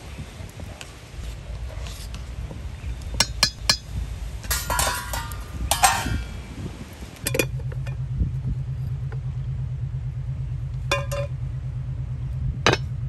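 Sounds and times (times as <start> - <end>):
low pulsing hum: 1.2 - 13.0
dishes and utensils clinking: 4.4 - 6.4.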